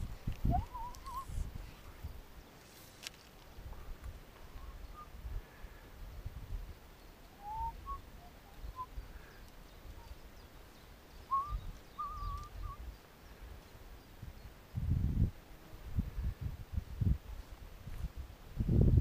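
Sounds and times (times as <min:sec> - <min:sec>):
birds chirping: 0:00.0 - 0:14.8
bird warbling: 0:11.3 - 0:12.8.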